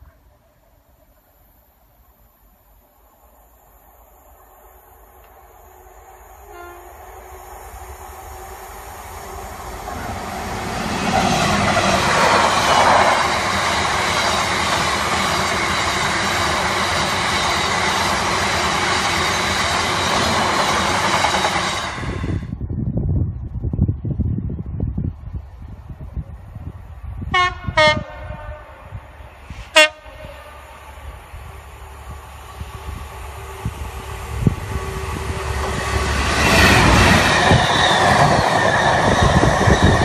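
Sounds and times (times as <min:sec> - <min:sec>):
freight train wheels and rail clatter: 0:04.0 - 0:22.6, 0:31.3 - 0:40.0
train horn: 0:06.4 - 0:07.2, 0:27.3 - 0:29.0, 0:29.7 - 0:31.0.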